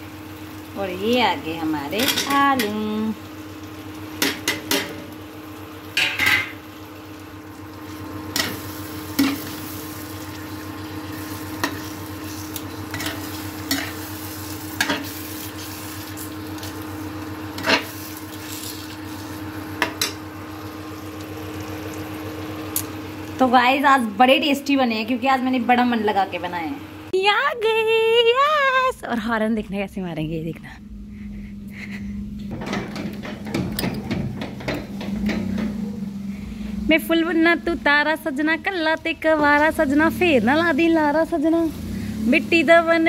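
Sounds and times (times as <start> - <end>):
cooktop hum: 0.0 - 43.0
low sizzle: 0.0 - 43.0
spoon scraping and knocking pan: 32.5 - 35.8.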